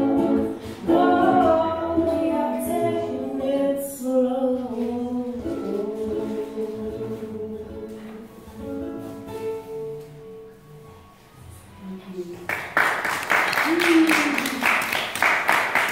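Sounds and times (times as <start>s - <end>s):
woman singing: 0.0s - 8.3s
strummed ukulele: 0.0s - 11.0s.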